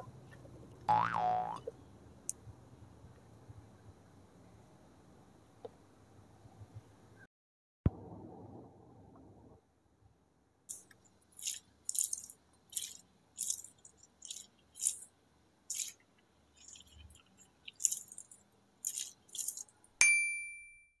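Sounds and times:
stress ball wet squish: 0:10.7 - 0:15.1, 0:15.7 - 0:19.8
bright ringing tone: 0:20.0 - 0:21.0.

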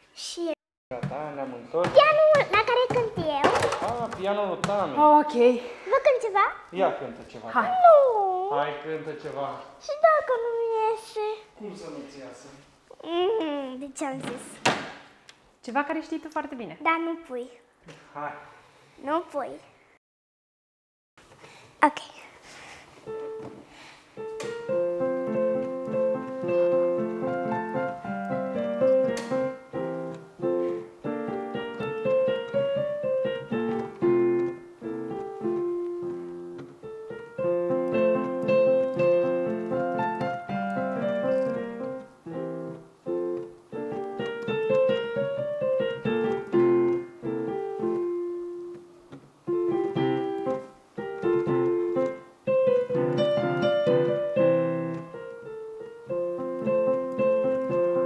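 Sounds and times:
piano melody over chords: 0:23.1 - 0:58.0.

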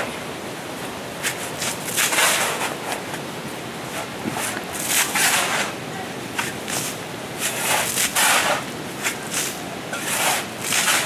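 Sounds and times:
shovels scraping wet soil and gravel: 0:01.2 - 0:03.0, 0:03.9 - 0:05.8, 0:06.4 - 0:11.0.

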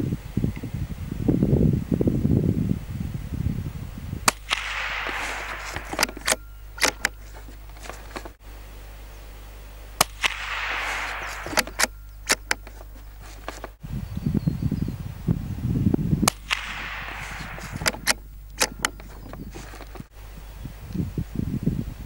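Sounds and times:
rifle shots: 0:04.3 - 0:08.4, 0:10.0 - 0:13.8, 0:16.3 - 0:20.0.

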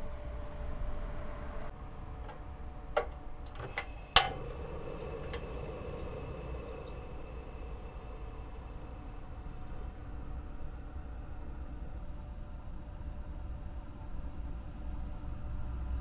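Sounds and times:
gas burner hissing: 0:01.7 - 0:12.2
gas stove igniter clicking: 0:02.2 - 0:09.9
water filling a kettle: 0:03.5 - 0:09.9.

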